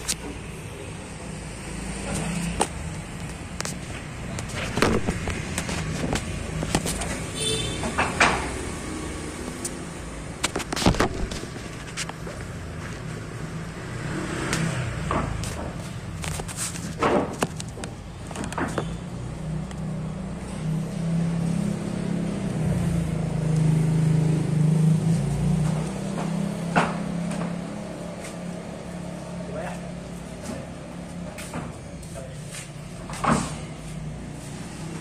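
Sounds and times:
wooden planks clattering: 0:15.1 - 0:18.8.

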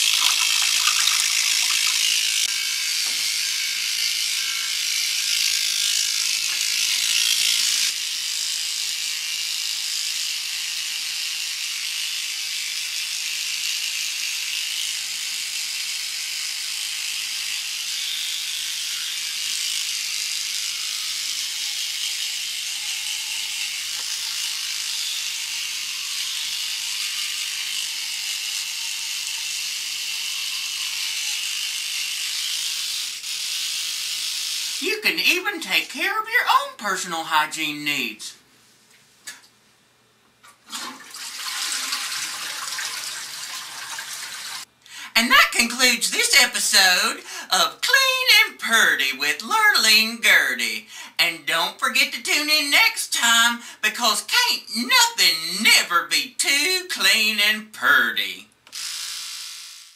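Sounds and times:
electric toothbrush buzzing: 0:00.0 - 0:38.2, 0:40.7 - 0:59.9.

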